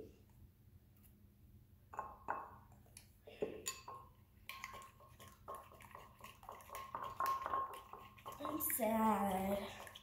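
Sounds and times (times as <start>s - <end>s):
spoon stirring slime: 3.6s - 10.0s.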